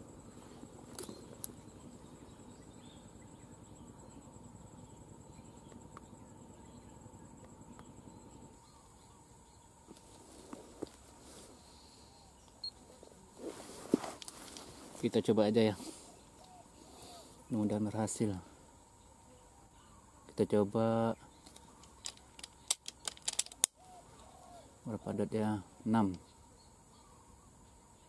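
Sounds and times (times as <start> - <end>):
insect trill: 0.0 - 28.0
soft rustling: 9.8 - 11.8, 12.8 - 16.4
small clicks: 21.4 - 23.8.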